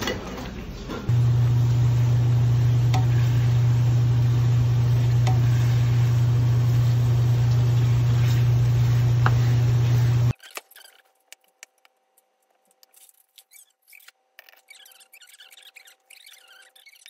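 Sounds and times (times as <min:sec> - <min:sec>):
kitchen appliance humming: 0:00.0 - 0:10.3.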